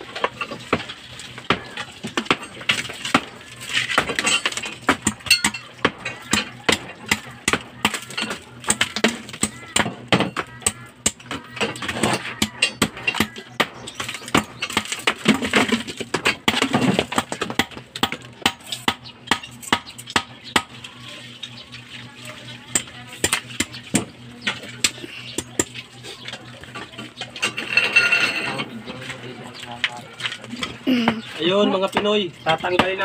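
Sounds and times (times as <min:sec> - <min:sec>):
hammer chipping mortar: 0:00.6 - 0:20.8, 0:22.7 - 0:25.8.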